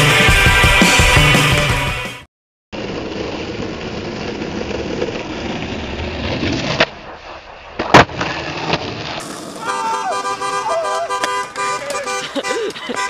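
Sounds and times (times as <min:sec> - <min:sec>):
skateboard wheels rolling on asphalt: 0:02.8 - 0:13.0
skateboard landing clack: 0:06.4 - 0:10.0
skateboard tail pop: 0:07.7 - 0:09.6.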